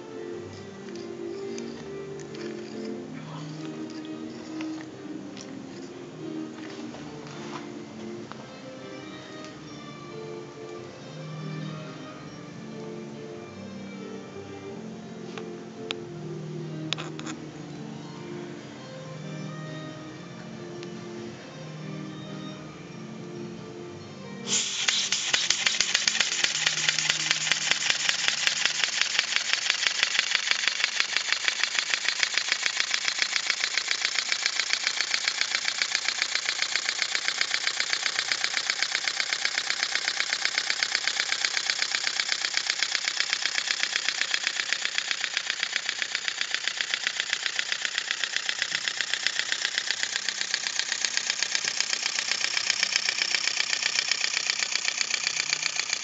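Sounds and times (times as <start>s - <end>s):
hiss of escaping air: 24.4s - 28.0s.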